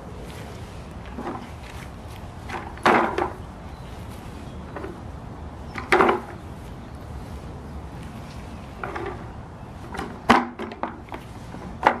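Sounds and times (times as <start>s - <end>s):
plastic body kicked on grass: 1.1s - 3.4s.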